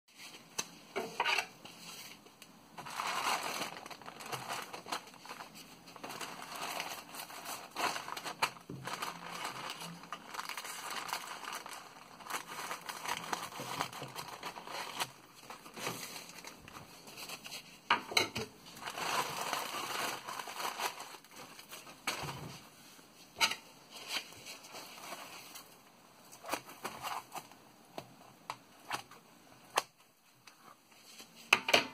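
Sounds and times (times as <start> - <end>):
plastic bag crinkling: 2.7 - 17.7, 18.6 - 22.6.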